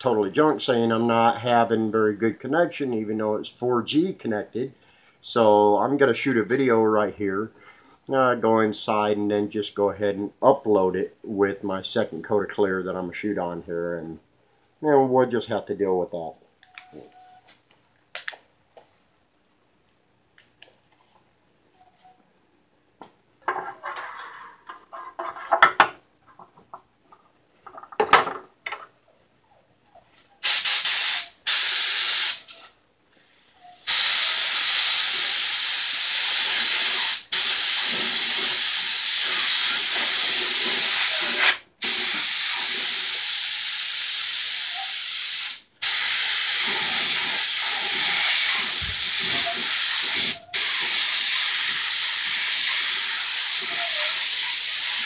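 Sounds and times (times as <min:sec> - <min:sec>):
spray gun hissing: 0:30.4 - 0:32.7, 0:33.8 - 0:55.0.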